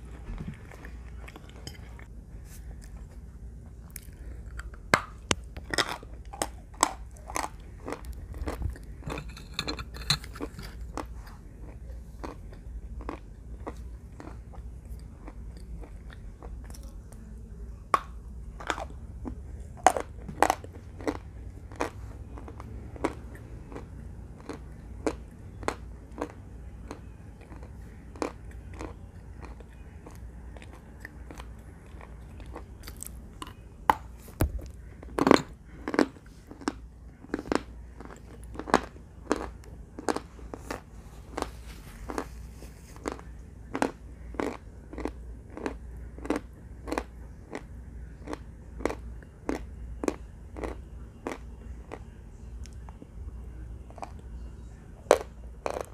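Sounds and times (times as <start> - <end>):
chalk being bitten and chewed: 35.2 - 47.6.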